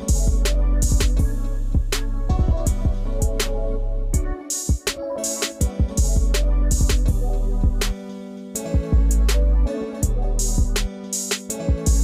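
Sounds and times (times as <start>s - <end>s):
regular drum hits: 10.4s - 12.0s.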